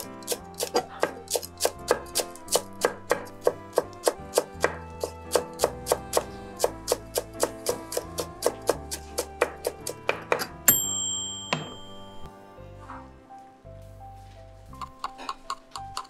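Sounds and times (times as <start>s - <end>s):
knife chopping on wooden board: 0.0s - 10.6s
background music: 0.0s - 16.0s.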